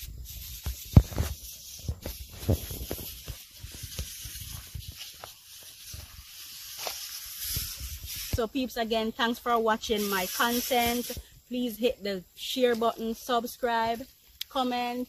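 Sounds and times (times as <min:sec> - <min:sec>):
sprayer wand hissing: 0:00.0 - 0:11.8.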